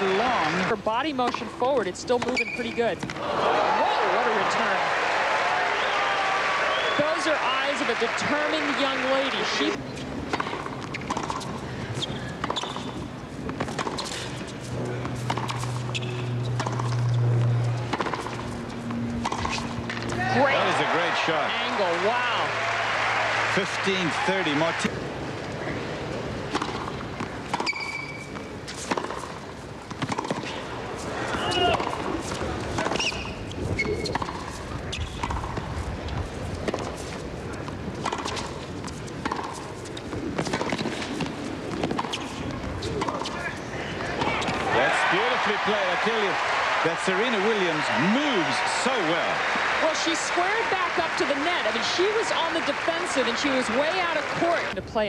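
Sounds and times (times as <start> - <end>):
sneakers squeaking: 2.1 - 3.1, 9.7 - 21.6, 26.5 - 45.4
rackets hitting tennis ball: 7.1 - 22.2, 26.5 - 54.8
background noise: 18.1 - 55.0.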